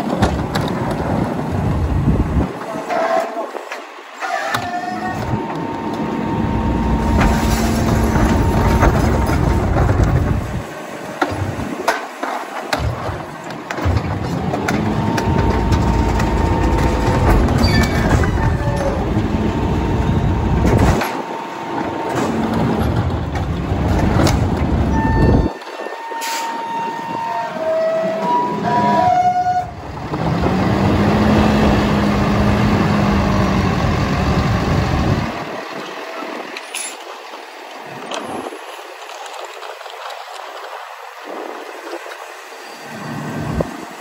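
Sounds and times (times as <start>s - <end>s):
garbage truck engine running: 0.0s - 26.4s, 29.6s - 44.0s
high squealing tones: 14.9s - 20.6s, 24.9s - 29.8s.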